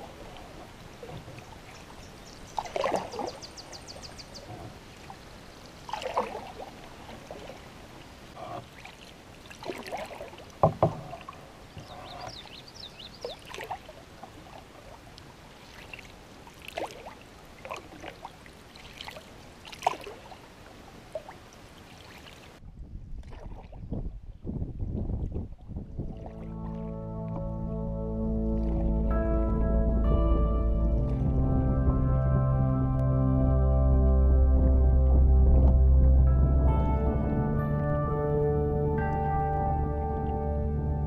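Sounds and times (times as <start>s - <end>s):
water drips and splashes: 0.0s - 22.6s, 25.1s - 27.4s
canoe paddle strokes: 0.0s - 24.4s, 25.0s - 27.7s, 28.4s - 30.0s, 34.0s - 37.6s
water rushing against hull: 0.0s - 41.0s
paddle knock: 9.6s - 12.5s, 34.0s - 37.6s.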